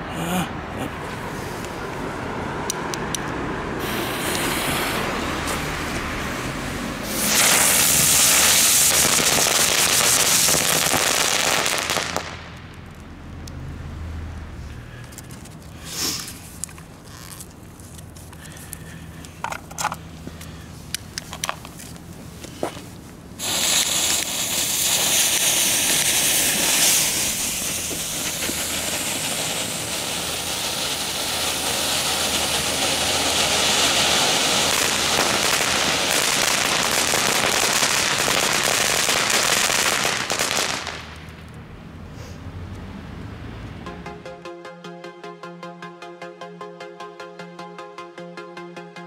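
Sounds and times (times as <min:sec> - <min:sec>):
fountain firework crackling hiss: 0:03.8 - 0:13.0, 0:15.7 - 0:18.8, 0:23.4 - 0:41.5.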